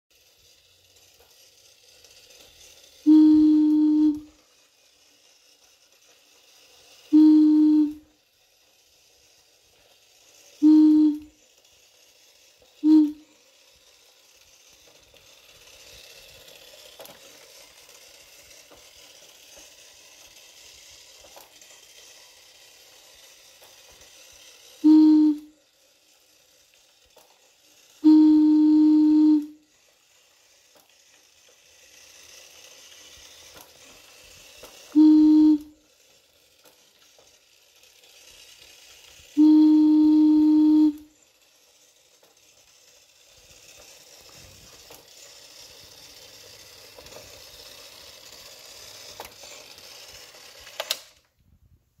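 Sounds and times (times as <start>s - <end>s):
toy motor whirring: 0.1s - 51.4s
toy whistle blasts: 3.0s - 4.4s, 7.0s - 8.1s, 10.6s - 11.4s, 12.8s - 13.4s, 24.8s - 25.6s, 28.0s - 29.6s, 34.9s - 35.8s, 39.4s - 41.2s.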